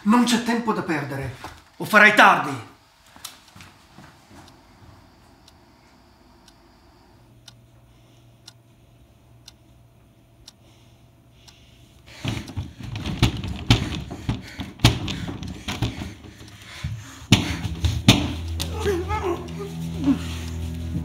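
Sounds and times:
faint regular ticking: 4.4 - 17.2
irregular thumps and knocks: 12.1 - 19.0
low hum: 17.0 - 21.0.

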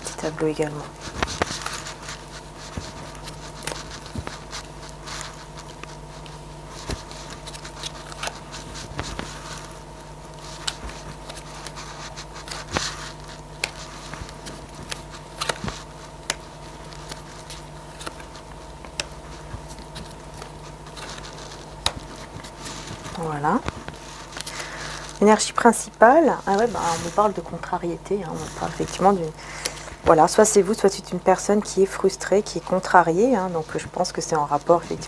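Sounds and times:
steady low hum: 0.0 - 35.0
cards tapping and scraping: 1.0 - 27.5.

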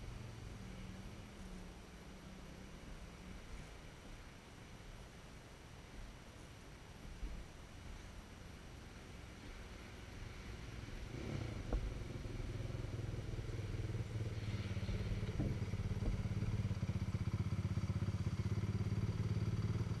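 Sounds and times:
quad engine running: 11.1 - 20.0.

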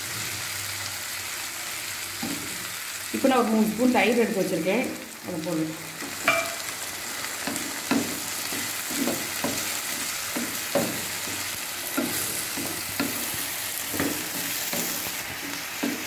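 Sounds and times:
vegetables sizzling in a pan: 0.0 - 16.0
wooden spatula scraping a pan: 7.4 - 16.0.

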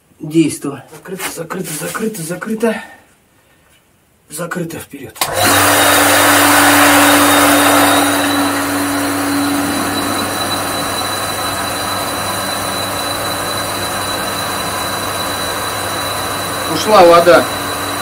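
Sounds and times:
electric water pump humming: 5.2 - 18.0.

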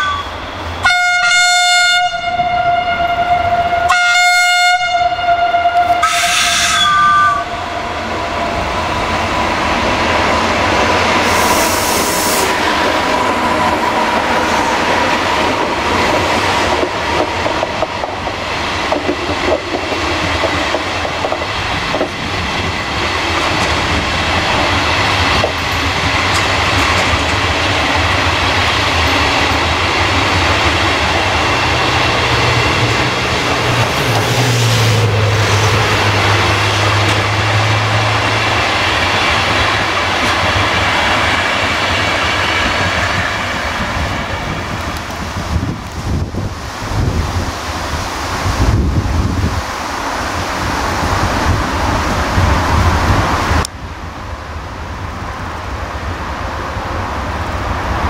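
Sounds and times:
train horn: 0.0 - 8.0
train wheels clattering: 14.8 - 45.2.

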